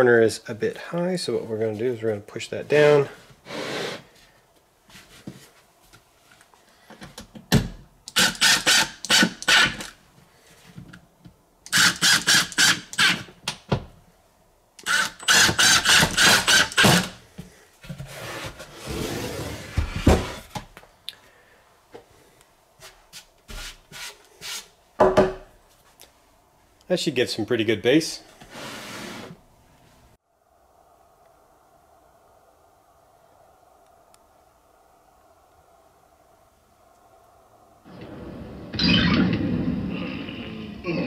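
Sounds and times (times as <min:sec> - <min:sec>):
impact driver hammering screws: 0:08.1 - 0:09.9, 0:11.7 - 0:13.3, 0:14.8 - 0:17.2
box scraping and handling: 0:17.8 - 0:20.6, 0:28.4 - 0:29.4.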